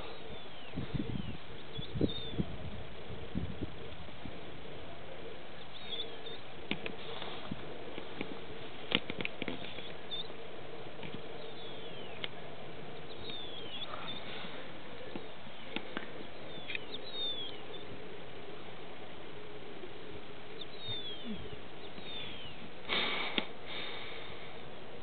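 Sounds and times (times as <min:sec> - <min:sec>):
steady low hum: 0:00.0 - 0:25.0
faint clicks: 0:06.6 - 0:10.0, 0:12.1 - 0:12.4, 0:14.9 - 0:16.9, 0:22.8 - 0:23.5.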